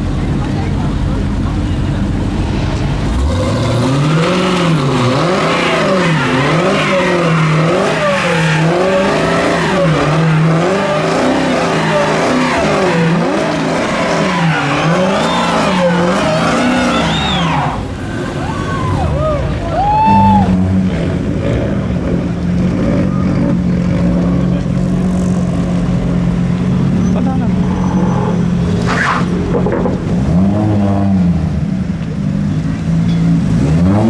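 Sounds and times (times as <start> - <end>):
car engine revving: 0.0 - 34.0
tyres squealing: 4.1 - 19.1.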